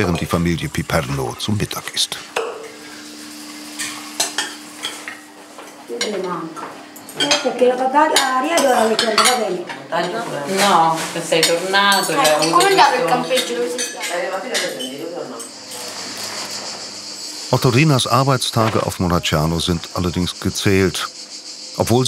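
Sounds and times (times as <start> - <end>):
voices talking: 0.0 - 2.4, 5.9 - 16.4, 17.3 - 22.0
cutlery scraping on plates: 8.1 - 16.6.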